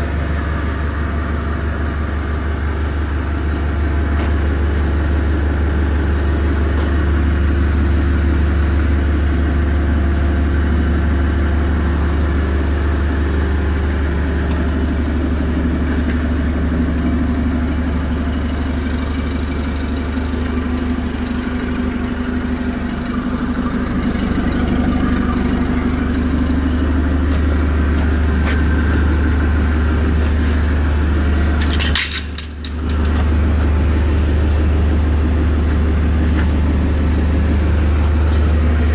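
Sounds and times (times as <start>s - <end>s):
forklift engine idling: 0.0s - 38.9s.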